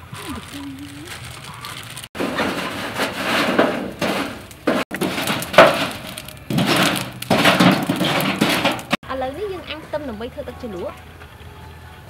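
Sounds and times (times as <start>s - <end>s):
scraping clinking and crackling: 0.0s - 9.0s
stick stirring clinking charcoal: 0.0s - 9.0s.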